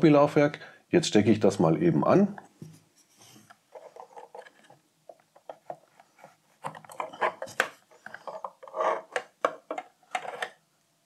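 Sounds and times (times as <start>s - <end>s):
cable handling rustles and knocks: 2.4s - 10.6s.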